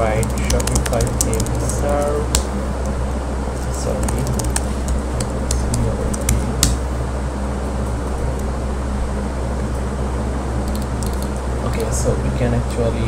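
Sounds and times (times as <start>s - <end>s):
low electrical hum with fan noise: 0.0s - 13.0s
keyboard keystrokes clicking: 0.2s - 2.4s, 4.0s - 6.8s, 10.7s - 11.3s.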